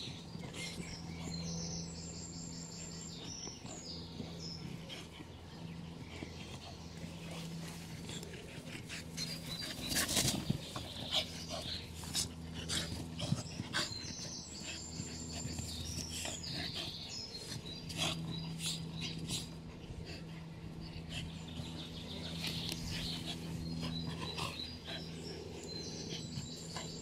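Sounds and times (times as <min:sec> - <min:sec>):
dogs panting: 0:00.0 - 0:27.0
dogs scuffling in dirt: 0:03.3 - 0:19.6.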